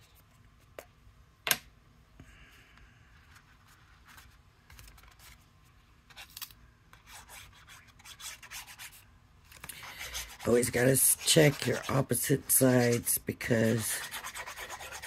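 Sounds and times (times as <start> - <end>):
paper scraping: 9.6 - 15.0.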